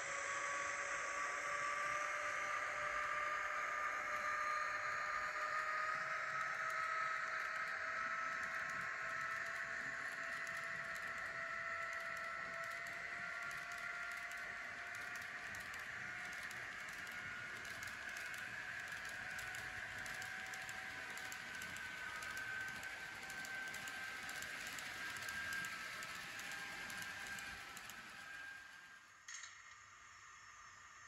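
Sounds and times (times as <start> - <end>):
model locomotive electric whine: 0.0 - 31.0
model wagon wheels clicking: 5.9 - 28.9.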